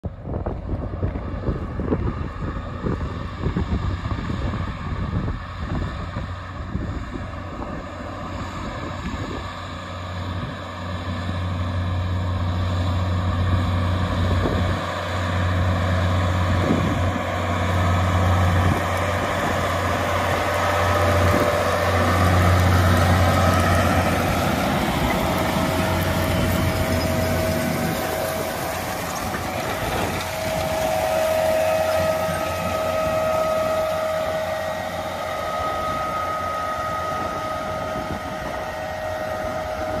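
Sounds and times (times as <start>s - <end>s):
tractor diesel engine drone: 0.0s - 40.0s.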